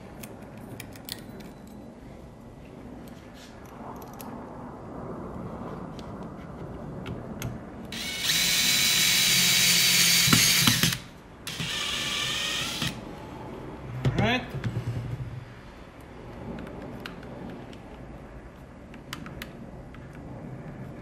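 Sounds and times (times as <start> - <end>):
cordless drill driving screws: 7.9 - 13.0.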